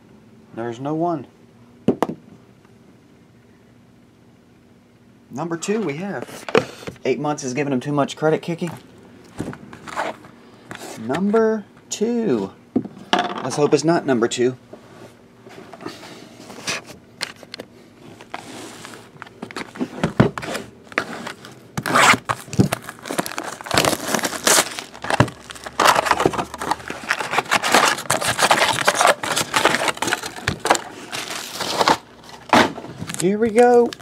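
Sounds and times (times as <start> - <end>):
foil packs crinkling: 17.2 - 34.0
plastic wrap crinkling and tearing: 21.3 - 34.0.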